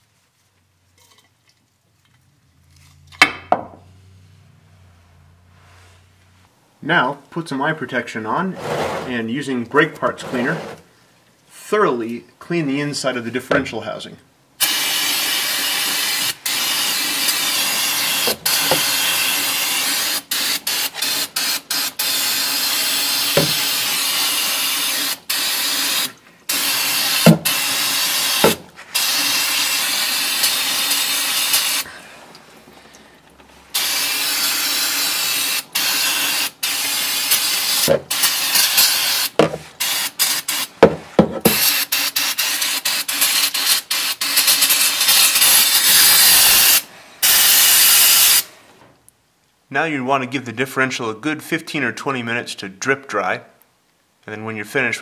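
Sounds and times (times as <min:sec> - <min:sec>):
aerosol spray hissing: 0:14.6 - 0:31.8, 0:33.7 - 0:40.7, 0:41.4 - 0:48.5.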